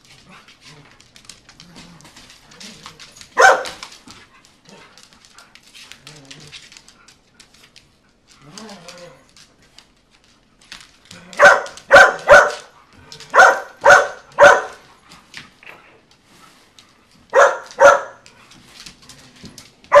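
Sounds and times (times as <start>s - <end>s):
dogs barking playfully: 2.7s - 5.0s, 11.1s - 15.1s, 17.2s - 18.4s, 19.8s - 20.0s.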